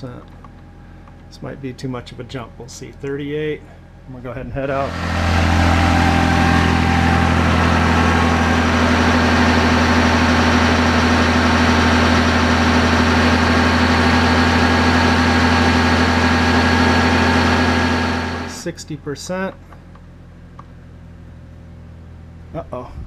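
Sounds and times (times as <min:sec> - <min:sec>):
diesel tractor engine running: 0:03.8 - 0:18.6.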